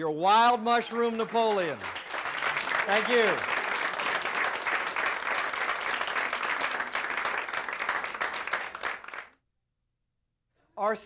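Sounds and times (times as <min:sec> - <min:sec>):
audience applauding: 0:00.7 - 0:09.4.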